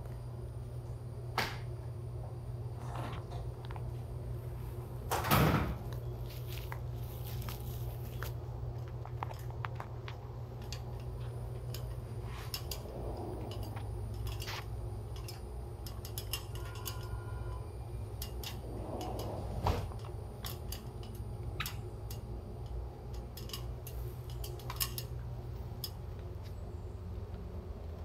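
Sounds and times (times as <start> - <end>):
steady low rumble: 5.7 - 16.6, 17.6 - 28.0
clicks and clanks on metal ladder: 8.8 - 19.4, 20.0 - 25.2.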